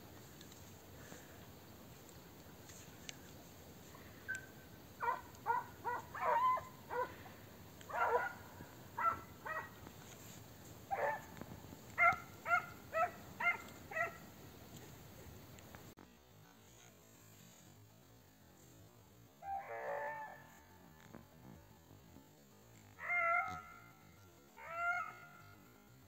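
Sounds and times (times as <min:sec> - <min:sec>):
dogs barking high-pitched: 0:04.3 - 0:07.2, 0:07.9 - 0:09.8, 0:10.9 - 0:11.4, 0:12.0 - 0:14.2, 0:23.0 - 0:23.9, 0:24.6 - 0:25.4.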